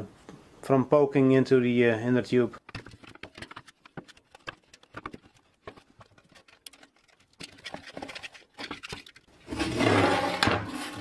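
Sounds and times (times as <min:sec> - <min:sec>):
clicks and rustling of rim tape: 0:02.6 - 0:09.3
bicycle wheel scraping and rattling: 0:02.6 - 0:11.0.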